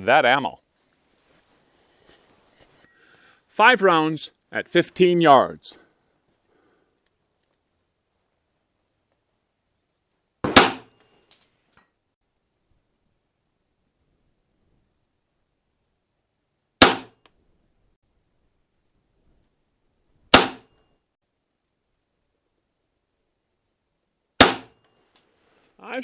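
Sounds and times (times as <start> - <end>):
pistol shots: 10.4 - 10.9, 16.8 - 17.1, 20.3 - 20.6, 24.4 - 24.7.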